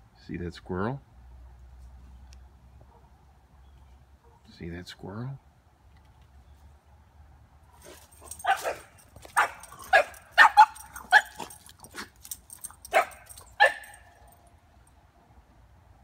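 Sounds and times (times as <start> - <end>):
small dog barking: 7.8 - 12.1, 12.7 - 14.2.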